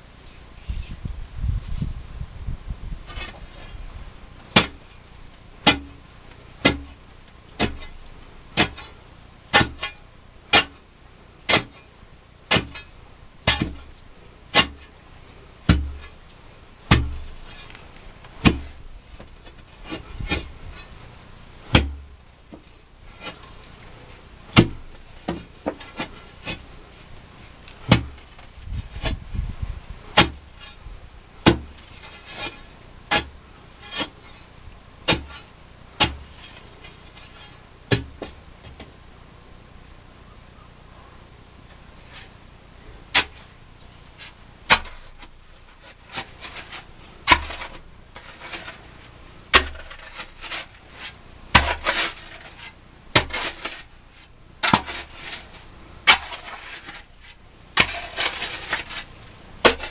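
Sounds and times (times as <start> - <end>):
pick striking earth and gravel: 0.0 - 39.0, 41.6 - 59.9.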